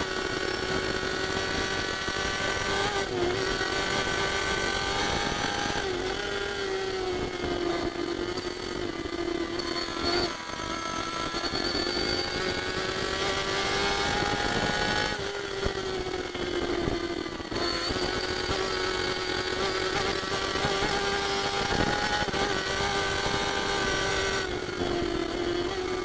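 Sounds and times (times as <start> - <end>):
motorcycle engine at high revs: 0.0 - 26.0.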